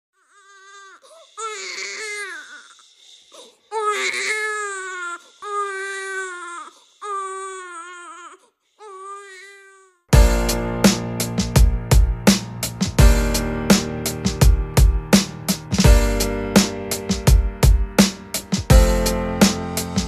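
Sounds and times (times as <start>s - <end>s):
newborn baby crying: 0.2s - 10.1s.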